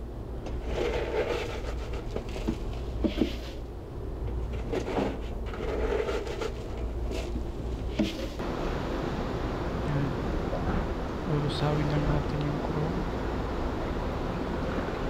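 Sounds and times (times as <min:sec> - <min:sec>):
low hum: 0:00.0 - 0:15.0
scoop scraping dry flakes: 0:00.6 - 0:03.6, 0:04.4 - 0:08.4.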